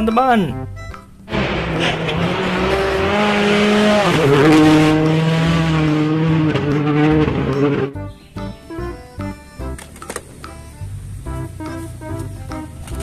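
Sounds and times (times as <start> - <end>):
rally car engine at high revs: 1.3 - 8.0.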